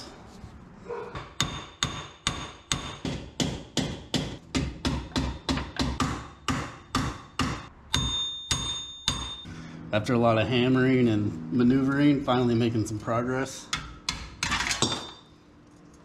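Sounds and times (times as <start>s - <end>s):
hammer striking metal bolts: 1.1s - 9.5s.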